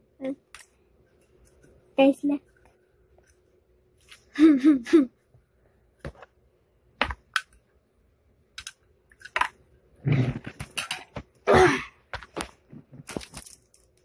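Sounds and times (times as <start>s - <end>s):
small objects clicking and tapping: 0.4s - 0.8s, 8.5s - 9.6s, 12.1s - 14.0s.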